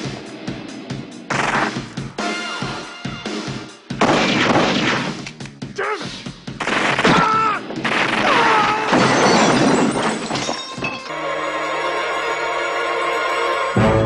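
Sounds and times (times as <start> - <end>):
background music: 0.0 - 14.0
gunshots: 1.3 - 2.1, 3.9 - 5.4, 6.5 - 9.9
glass smashing: 8.4 - 11.1.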